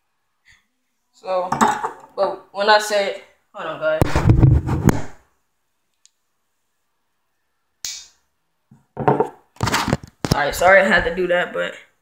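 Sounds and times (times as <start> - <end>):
person speaking: 10.3 - 12.0.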